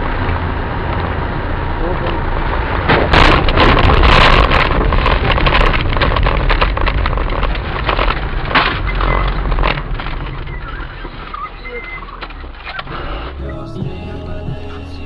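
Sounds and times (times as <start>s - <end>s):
sharp thumps: 2.7s - 11.4s
knocks and rattles: 2.7s - 13.4s.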